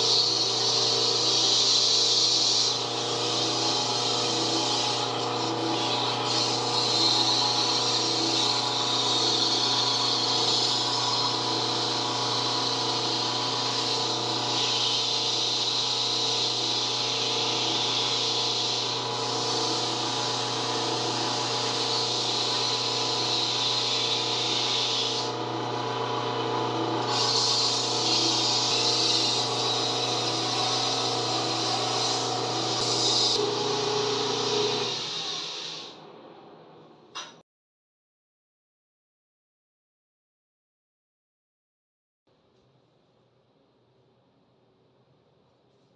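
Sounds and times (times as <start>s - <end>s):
sandpaper hissing on wood: 0.0s - 25.3s, 27.1s - 33.4s
lathe motor humming: 0.0s - 36.1s.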